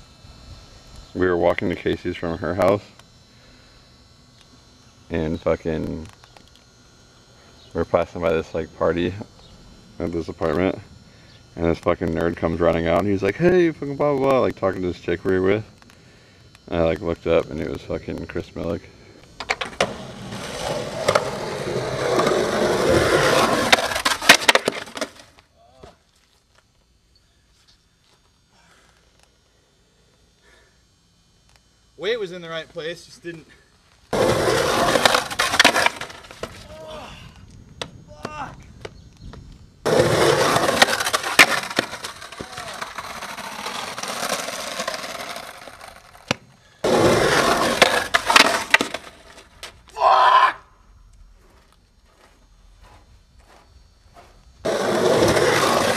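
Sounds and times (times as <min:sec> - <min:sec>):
skateboard rolling on concrete: 0:16.6 - 0:25.4, 0:34.1 - 0:36.8, 0:38.8 - 0:49.9, 0:51.5 - 0:55.9
skateboard clacks: 0:19.4 - 0:25.3, 0:34.1 - 0:36.6, 0:39.9 - 0:49.7
skateboarder falling on concrete: 0:19.4 - 0:26.0, 0:34.1 - 0:36.9, 0:39.8 - 0:49.8, 0:54.6 - 0:55.9.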